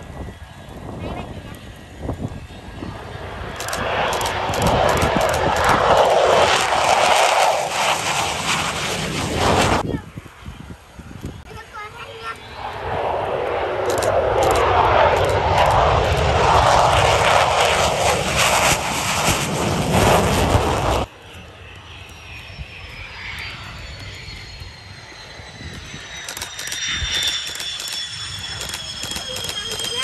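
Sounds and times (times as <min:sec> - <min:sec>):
distant jet whine: 0:00.0 - 0:30.0
jet engine passing close: 0:00.0 - 0:30.0.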